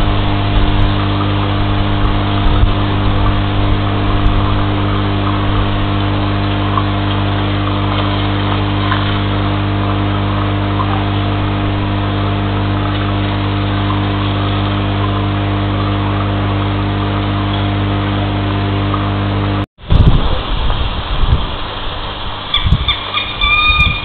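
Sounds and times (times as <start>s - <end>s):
low rumbling thuds: 0.0s - 6.5s, 19.8s - 21.7s
machine-like hum: 0.0s - 24.0s.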